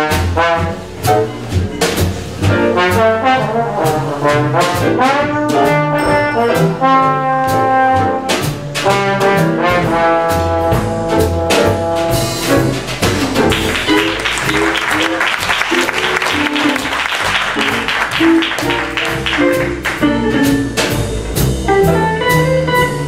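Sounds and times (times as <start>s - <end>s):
drums with cymbal strokes: 0.0s - 13.6s, 19.6s - 23.0s
trombone solo: 0.0s - 16.9s
piano: 0.0s - 23.0s
upright bass: 0.0s - 23.0s.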